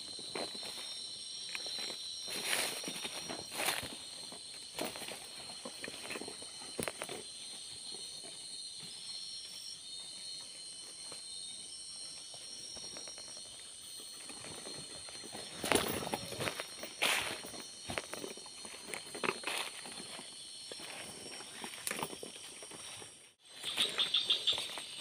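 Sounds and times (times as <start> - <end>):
footsteps rustling through undergrowth: 0.0 - 11.4, 13.8 - 25.0
night insects chorus: 0.0 - 25.0.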